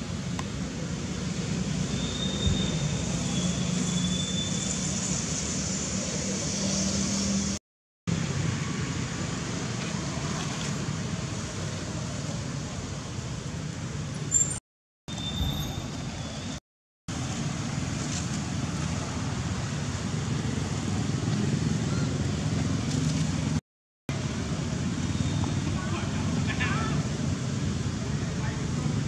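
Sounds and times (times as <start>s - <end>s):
low hum of traffic or motor: 0.0s - 14.6s, 17.1s - 29.0s
faint high whistle: 1.9s - 4.8s.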